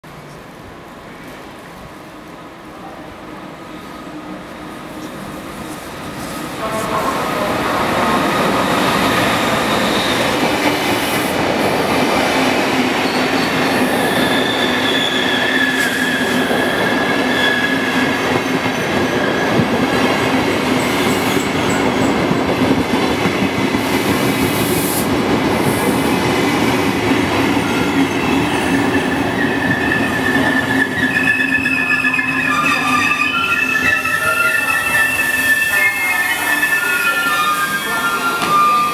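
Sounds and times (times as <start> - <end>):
train coaches rumbling past: 0.0 - 38.9
wheel and brake squeals: 13.0 - 19.5, 28.1 - 35.8.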